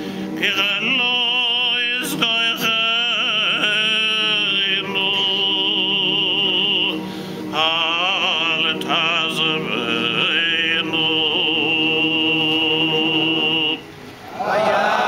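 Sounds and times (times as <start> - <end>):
man chanting prayers: 0.4 - 13.9.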